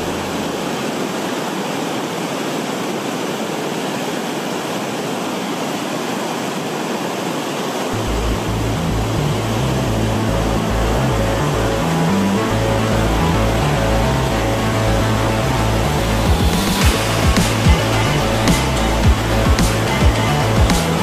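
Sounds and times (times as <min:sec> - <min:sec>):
low bass music: 0:00.0 - 0:00.7, 0:08.0 - 0:21.0
river whitewater roaring: 0:00.0 - 0:21.0.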